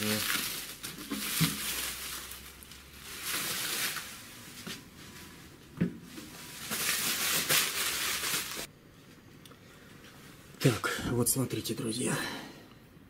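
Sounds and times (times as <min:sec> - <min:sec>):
bubble wrap rustling: 0:00.0 - 0:08.7.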